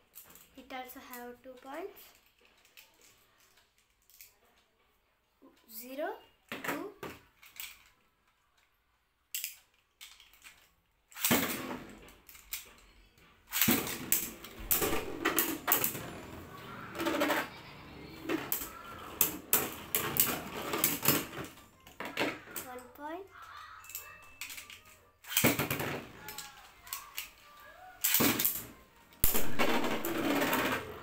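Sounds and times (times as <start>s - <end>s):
spinning tops clashing and clacking: 9.4s - 12.8s, 13.5s - 22.7s, 23.8s - 31.0s
spinning tops launched into stadium: 11.1s - 11.9s, 13.5s - 17.6s, 28.0s - 31.0s
ripcord launcher pull: 13.5s - 15.9s, 25.2s - 27.3s, 28.0s - 28.6s.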